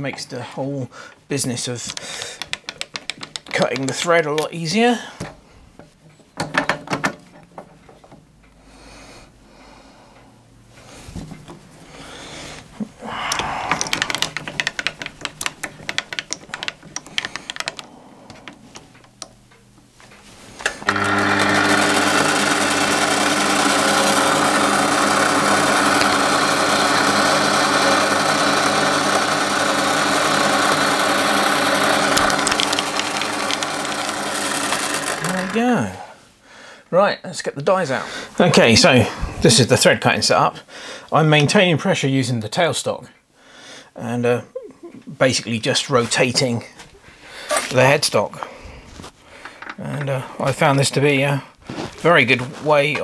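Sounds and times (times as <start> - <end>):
lathe tool clicking and rattling: 1.9 - 4.5, 13.8 - 17.9, 20.6 - 35.6
metal lathe running: 20.8 - 35.6.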